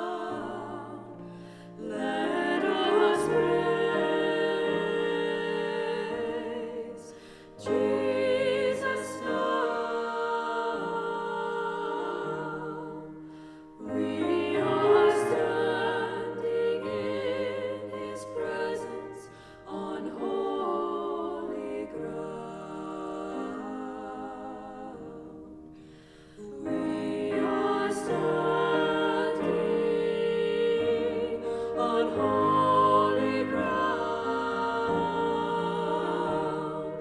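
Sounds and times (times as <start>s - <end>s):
piano accompaniment: 0.0s - 37.0s
women singing in harmony: 0.0s - 37.0s.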